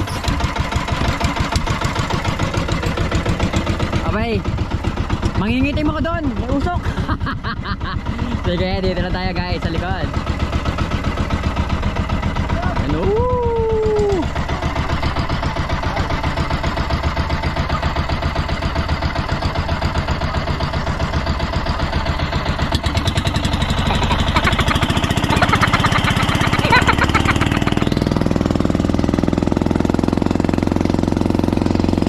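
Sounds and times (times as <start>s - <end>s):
motorboat engine chugging: 0.0s - 32.0s.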